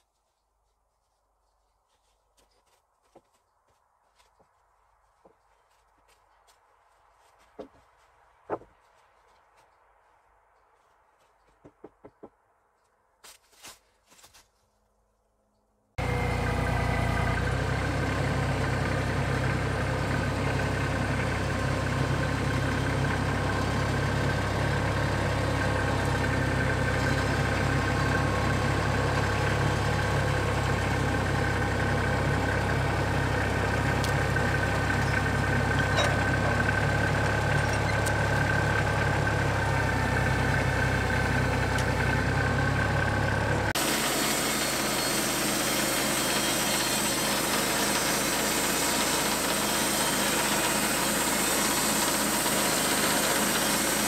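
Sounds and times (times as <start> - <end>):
band sawmill running: 16.0 - 54.0
tractor engine idling: 16.0 - 54.0.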